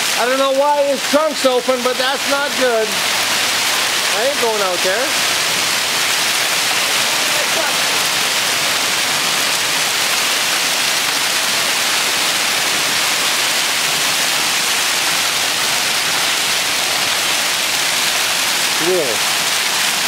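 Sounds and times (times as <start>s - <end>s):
hail and heavy rain falling: 0.0s - 20.0s.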